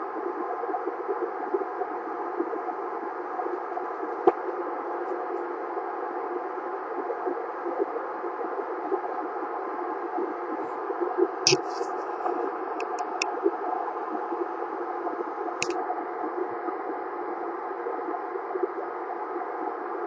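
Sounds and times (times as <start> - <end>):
sharp radio clicks: 11.5 - 11.9, 12.8 - 13.2
radio static hiss: 11.5 - 13.2.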